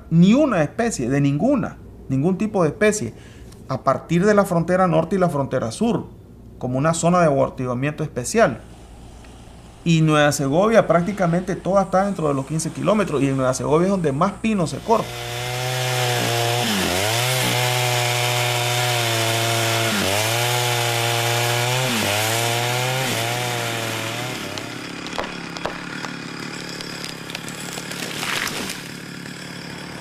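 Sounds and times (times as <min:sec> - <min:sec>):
chainsaw cutting wood: 0:14.6 - 0:30.0
wood cracking and snapping: 0:15.1 - 0:30.0.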